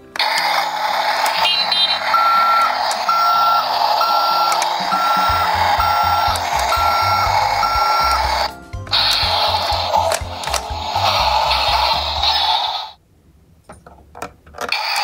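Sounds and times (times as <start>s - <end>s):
hissy toy truck engine noise: 0.2s - 13.0s, 14.7s - 15.0s
reversing alarm beeping: 1.4s - 10.0s.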